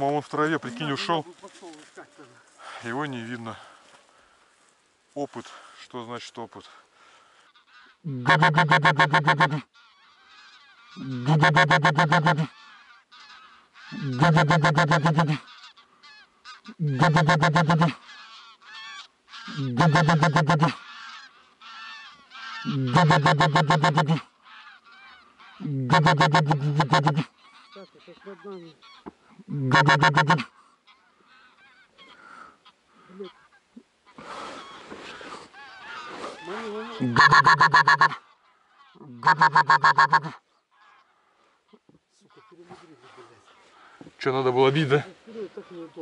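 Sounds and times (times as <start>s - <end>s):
geese honking: 7.4s - 46.0s.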